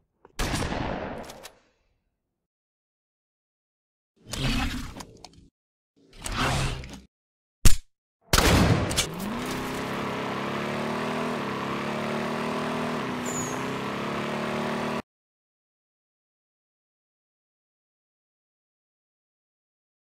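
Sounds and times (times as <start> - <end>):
engine revving: 9.0 - 15.0.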